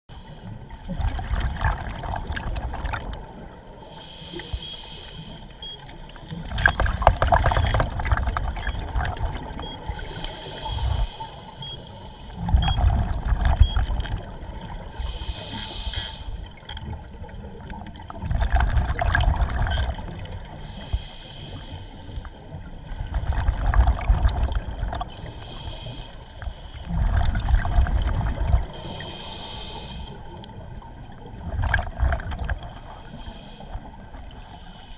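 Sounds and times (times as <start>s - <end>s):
regulator hissing inhalations: 3.8s - 5.6s, 9.8s - 12.4s, 14.9s - 16.5s, 20.6s - 22.4s, 25.1s - 26.9s, 28.8s - 30.3s, 32.9s - 34.9s
bubbling exhalations: 26.9s - 28.7s.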